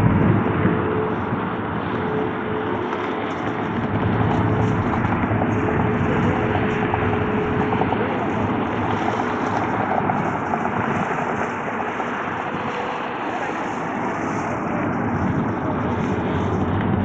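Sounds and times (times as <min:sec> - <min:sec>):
jet engines roaring: 0:00.0 - 0:17.0
wind noise on microphone: 0:00.0 - 0:17.0.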